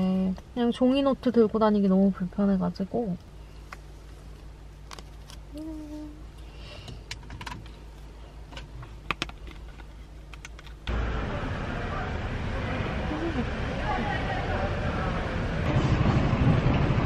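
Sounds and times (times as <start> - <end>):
steady low hum: 0.0 - 17.0
outdoor street noise: 7.4 - 17.0.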